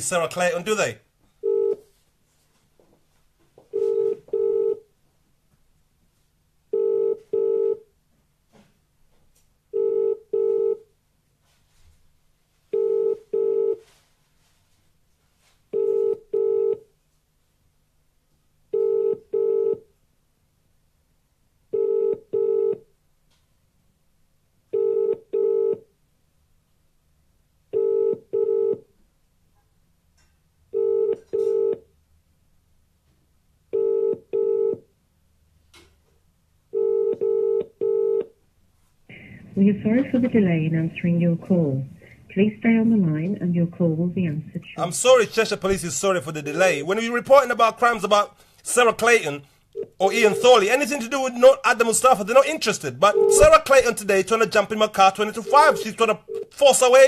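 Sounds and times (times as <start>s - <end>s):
telephone ringing tone: 1.4s - 1.8s, 3.7s - 4.8s, 6.7s - 7.8s, 9.7s - 10.8s, 12.7s - 13.9s, 15.7s - 16.9s, 18.7s - 19.8s, 21.7s - 22.8s, 24.7s - 25.8s, 27.7s - 28.8s, 30.7s - 31.8s, 33.7s - 34.8s, 36.7s - 38.3s, 49.8s - 50.7s, 53.0s - 53.5s, 55.2s - 56.6s.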